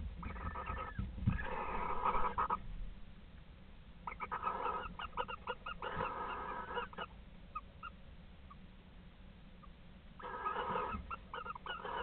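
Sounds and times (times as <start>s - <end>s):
barn owl rasping screeches: 0.2s - 2.6s, 4.0s - 8.0s, 10.2s - 12.0s.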